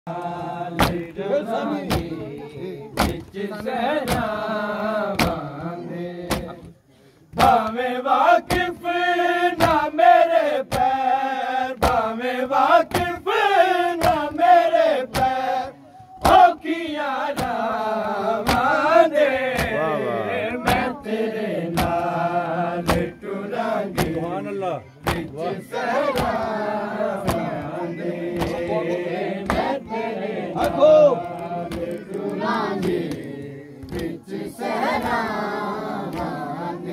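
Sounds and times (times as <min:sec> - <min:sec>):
men chanting a lament: 0:00.1 - 0:36.9
hands slapping chests: 0:00.2 - 0:01.2, 0:01.8 - 0:03.4, 0:04.0 - 0:04.4, 0:05.0 - 0:07.8, 0:10.6 - 0:11.0, 0:11.8 - 0:12.1, 0:12.8 - 0:13.3, 0:13.9 - 0:15.4, 0:16.2 - 0:16.6, 0:17.2 - 0:17.8, 0:18.4 - 0:19.8, 0:20.6 - 0:21.0, 0:21.6 - 0:22.2, 0:22.8 - 0:23.2, 0:23.9 - 0:24.2, 0:25.0 - 0:28.7, 0:29.4 - 0:29.9, 0:30.5 - 0:34.2, 0:34.8 - 0:36.5.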